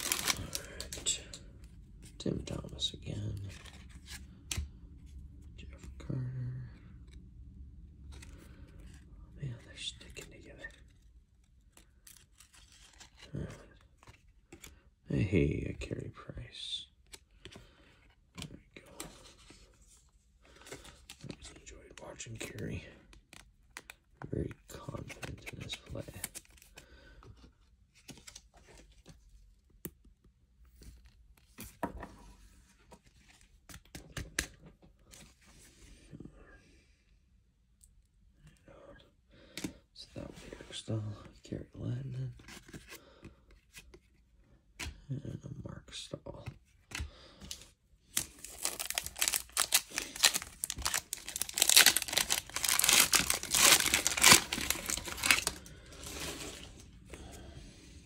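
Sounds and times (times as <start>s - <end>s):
plastic wrapper crinkling and tearing: 0.0s - 1.3s, 48.1s - 56.7s
cards rustling and ticking: 0.0s - 4.8s, 9.6s - 14.9s, 17.0s - 30.2s, 33.0s - 35.4s, 46.4s - 56.7s.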